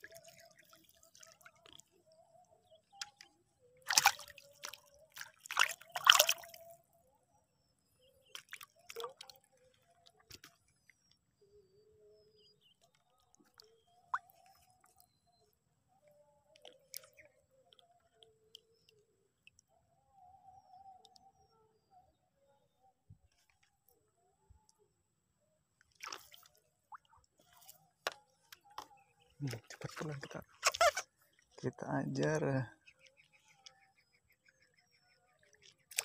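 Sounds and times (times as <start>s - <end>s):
water dripping: 0.0s - 2.0s, 3.9s - 6.6s, 8.3s - 9.4s, 16.5s - 19.7s
water splashing: 0.0s - 2.0s, 2.9s - 6.7s, 8.2s - 10.8s, 25.9s - 27.7s, 35.6s - 36.0s.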